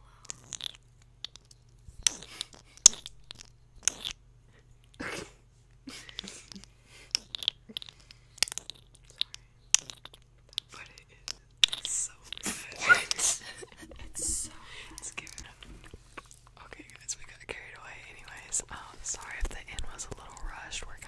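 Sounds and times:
crisp clicks and crackles: 0.2 - 4.2, 6.6 - 12.4.

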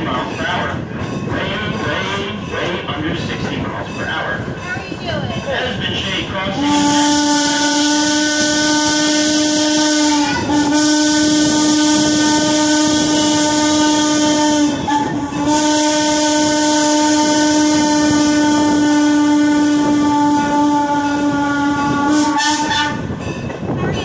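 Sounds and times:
train rolling: 0.0 - 24.0
steam whistle blasts: 6.6 - 23.1.

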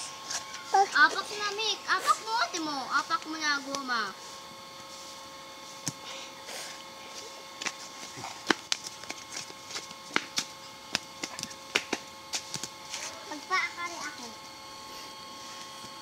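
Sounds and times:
faint steady whine: 0.0 - 16.0
feet landing on concrete: 7.6 - 13.1.

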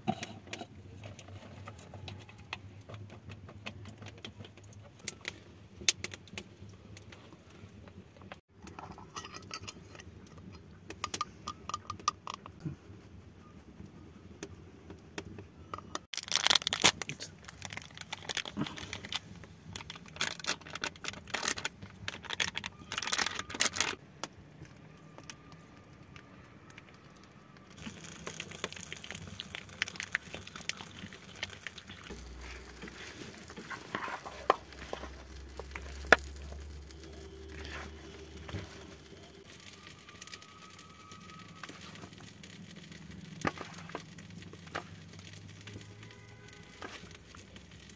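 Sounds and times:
packet handling noise: 15.2 - 47.9
plastic packet tearing and crinkling: 16.1 - 24.0, 27.8 - 47.9.

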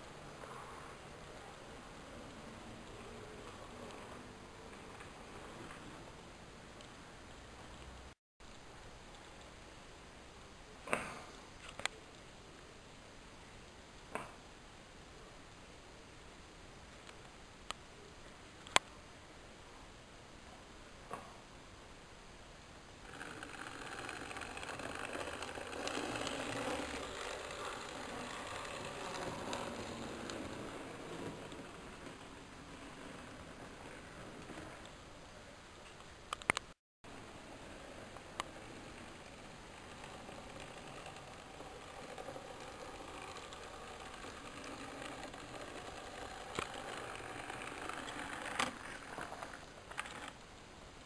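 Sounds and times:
model train running on track: 23.1 - 34.8, 37.5 - 50.3
sharp clicks: 35.9 - 36.8.

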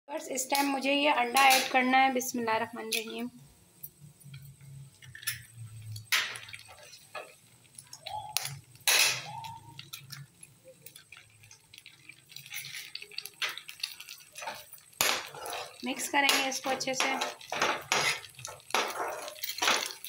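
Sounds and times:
eggshells cracking: 5.0 - 20.0.

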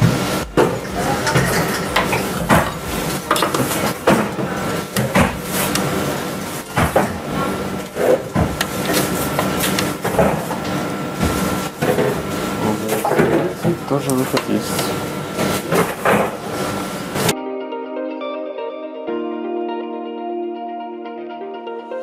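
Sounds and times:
steady background noise: 0.0 - 17.4.

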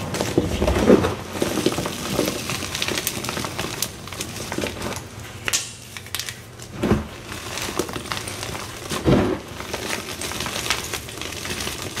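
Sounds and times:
chalk crunching and crumbling: 7.3 - 12.0.

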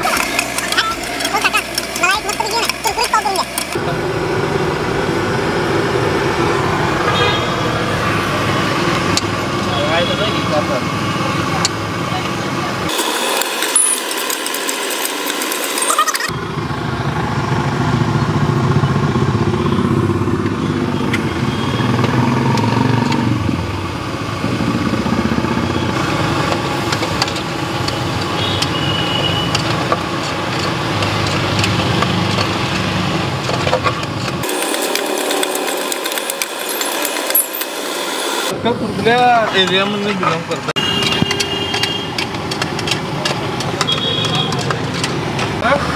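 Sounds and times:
low engine rumble: 0.0 - 12.9.

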